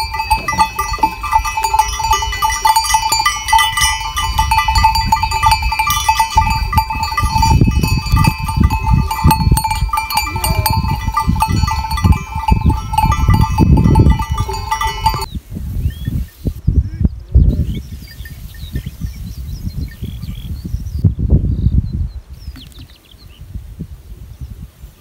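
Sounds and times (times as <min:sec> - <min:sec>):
neck bells clanking: 0:00.0 - 0:15.3
sheep and goats bleating: 0:09.9 - 0:12.2.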